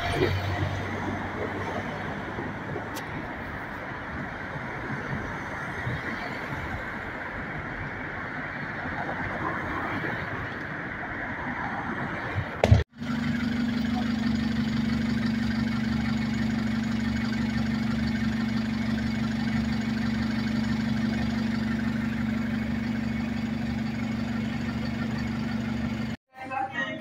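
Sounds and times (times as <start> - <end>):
street traffic: 0.0 - 27.0
idling vehicle engine hum: 12.6 - 26.2.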